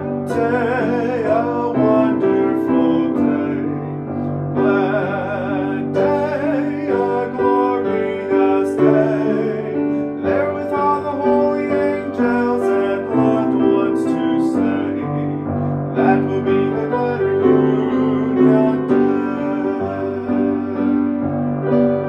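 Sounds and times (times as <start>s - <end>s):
piano playing hymn tune: 0.0s - 22.0s.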